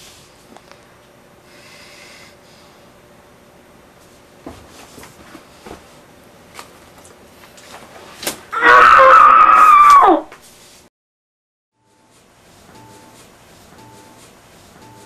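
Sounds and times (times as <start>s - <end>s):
woman wailing: 8.6s - 10.3s.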